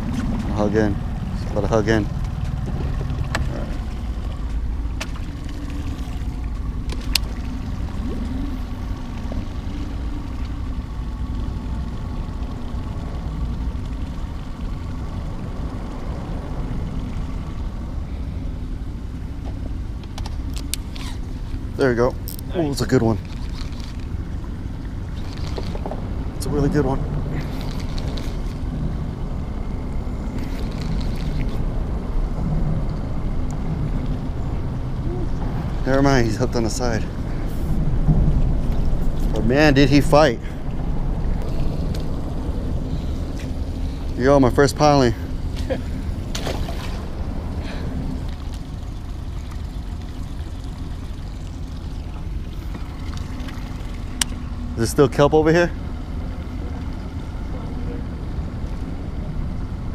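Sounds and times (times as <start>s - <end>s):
low mechanical drone: 0.0s - 59.9s
wind buffeting microphone: 24.0s - 54.8s.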